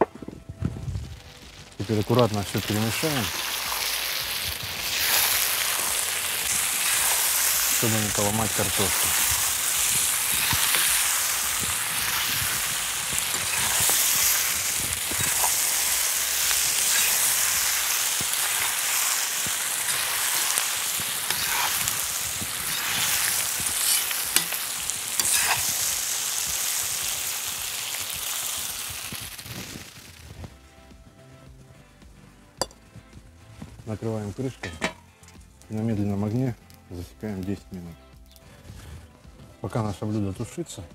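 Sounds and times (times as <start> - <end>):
food sizzling in a pot: 0.7 - 30.5, 34.0 - 36.5
metal spatula scraping a pot: 8.5 - 25.8.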